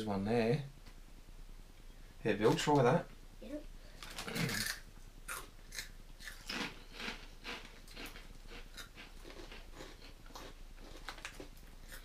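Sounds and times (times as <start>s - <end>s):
people crunching snacks: 4.0s - 12.0s.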